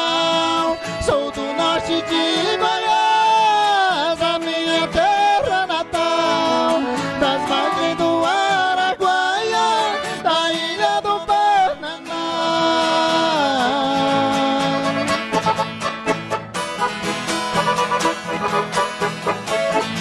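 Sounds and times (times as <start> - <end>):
piano accordion: 0.0 - 11.1, 14.1 - 20.0
men singing in harmony: 0.0 - 14.8
acoustic guitars: 0.0 - 20.0.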